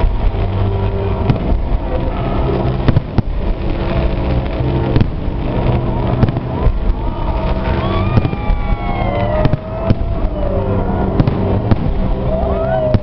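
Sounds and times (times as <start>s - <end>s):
fireworks bangs: 0.0s - 13.0s
steady low rumble: 0.0s - 13.0s
fireworks whistles falling in pitch: 7.1s - 13.0s.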